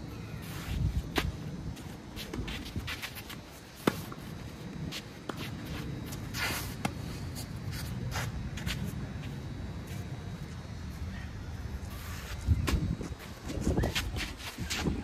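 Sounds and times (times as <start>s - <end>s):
shoes scuffing on clay: 0.4s - 10.6s, 11.8s - 15.0s.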